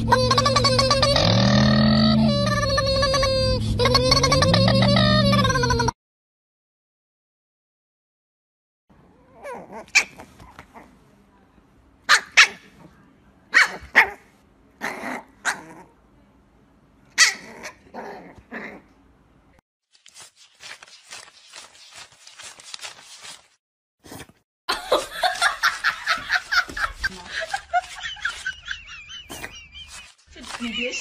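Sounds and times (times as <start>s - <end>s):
puppy yapping: 9.3s - 10.9s, 12.1s - 12.8s, 13.5s - 15.9s, 17.2s - 18.8s
banknotes being riffled: 20.0s - 23.6s, 25.4s - 31.0s.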